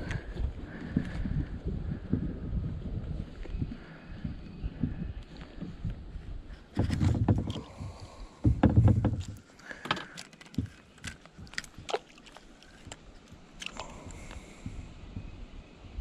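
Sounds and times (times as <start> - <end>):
heavy low thuds: 0.5 - 9.4
gear knocking in boat: 6.7 - 12.0.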